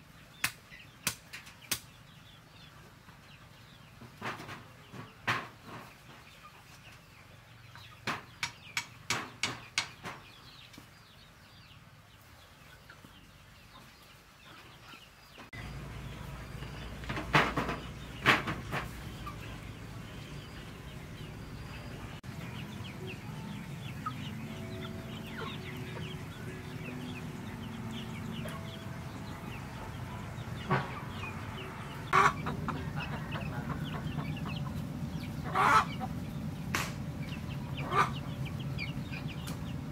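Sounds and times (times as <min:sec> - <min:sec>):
chickens clucking: 0:00.0 - 0:39.9
sharp knocks: 0:08.0 - 0:10.2, 0:17.0 - 0:19.0.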